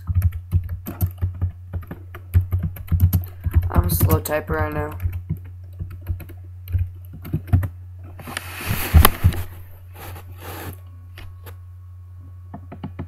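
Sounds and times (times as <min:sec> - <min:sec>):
keyboard typing: 0:00.0 - 0:07.7
steady low hum: 0:00.0 - 0:13.0.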